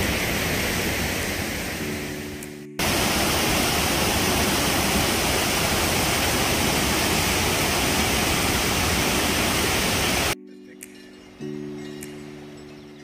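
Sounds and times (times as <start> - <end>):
water rushing: 0.0 - 10.4.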